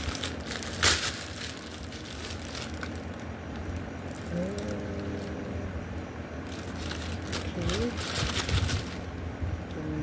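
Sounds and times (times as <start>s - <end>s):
plastic bag crinkling: 0.0s - 5.4s, 6.4s - 9.1s
person humming: 4.2s - 5.9s, 9.7s - 10.0s.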